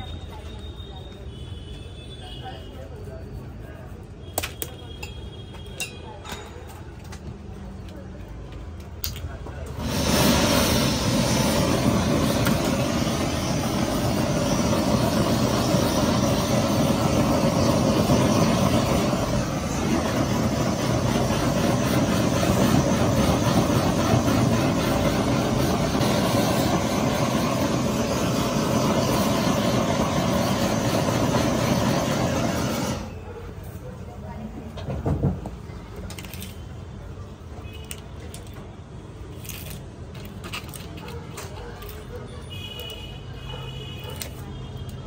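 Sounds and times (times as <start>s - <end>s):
blowtorch flame hissing: 9.6s - 33.2s.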